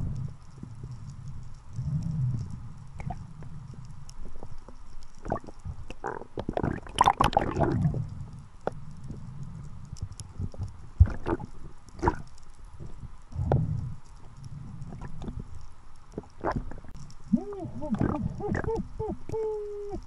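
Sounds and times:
water gurgling and churning: 0:05.2 - 0:08.0, 0:11.0 - 0:12.2, 0:17.6 - 0:19.0.

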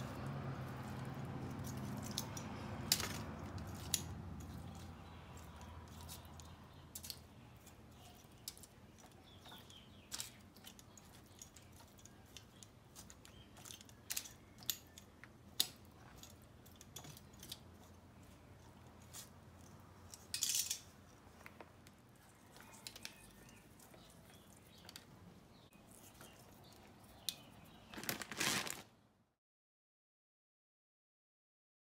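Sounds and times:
aluminium foil crinkling: 0:25.8 - 0:29.0.

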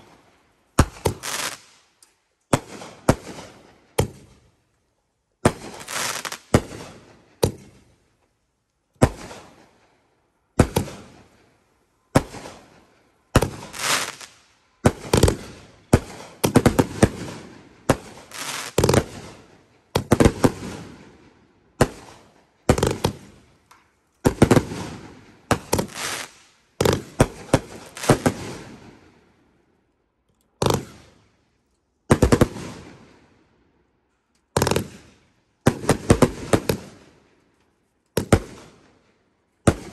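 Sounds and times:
fireworks bangs: 0:00.8 - 0:01.8, 0:05.4 - 0:07.8, 0:12.1 - 0:23.4, 0:24.2 - 0:29.2, 0:34.6 - 0:37.1, 0:39.7 - 0:39.9.

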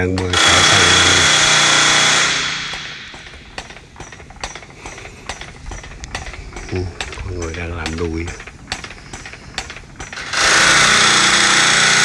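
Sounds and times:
metallic knocks echoing: 0:00.0 - 0:12.0
loud hiss with high whine: 0:00.3 - 0:03.6.

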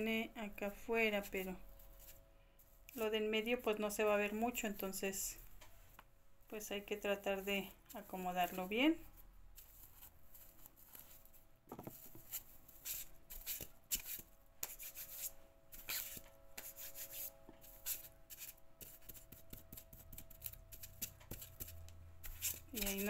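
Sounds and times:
fingers rubbing and rustling lace: 0:00.6 - 0:23.0
light crackles of lace: 0:06.8 - 0:13.6.

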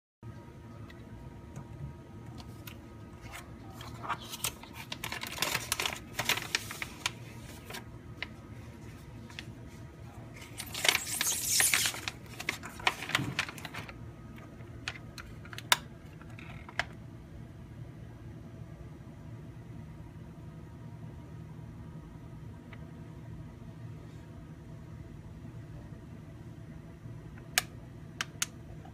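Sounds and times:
steady low hum: 0:00.2 - 0:28.9
plastic bag crinkling: 0:02.4 - 0:09.5, 0:10.3 - 0:14.0.

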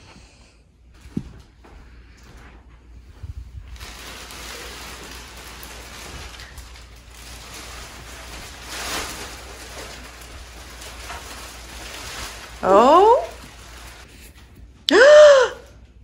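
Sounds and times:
plastic wrap rustling and crinkling: 0:03.1 - 0:14.8
plastic wrap swish: 0:03.7 - 0:14.2.

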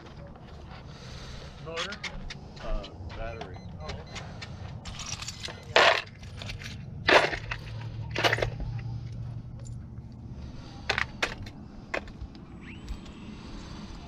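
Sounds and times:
small parts rattling in plastic box: 0:04.8 - 0:08.6.

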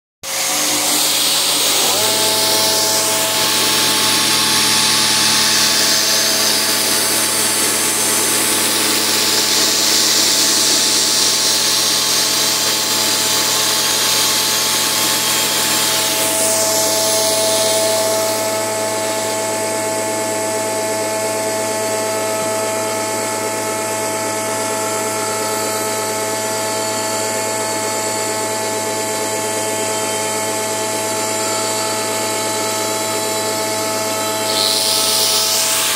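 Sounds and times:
angle grinder motor whine: 0:00.2 - 0:35.9
harsh grinding hiss: 0:00.3 - 0:19.3, 0:34.2 - 0:35.9.

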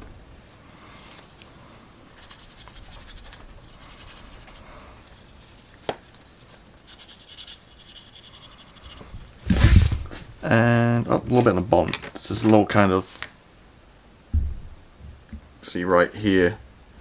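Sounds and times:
paintbrush scratching on plastic: 0:02.1 - 0:09.1.

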